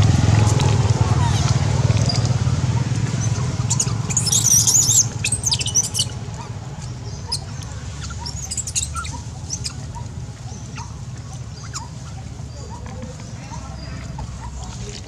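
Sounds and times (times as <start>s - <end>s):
steady low hum: 0.0s - 15.0s
baby monkey screaming: 3.0s - 12.8s.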